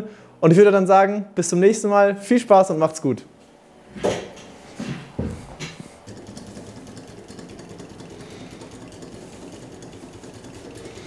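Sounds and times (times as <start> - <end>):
thump and rustling: 3.9 - 5.9
model steam engine ticking: 6.0 - 11.0.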